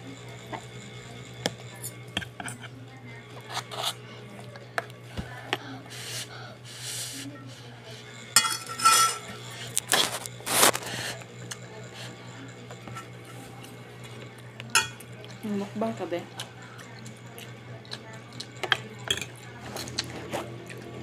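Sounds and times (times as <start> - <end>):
fork and spoon clinking on pot: 8.4 - 9.4, 14.7 - 15.0
slurping noodles: 9.5 - 11.3.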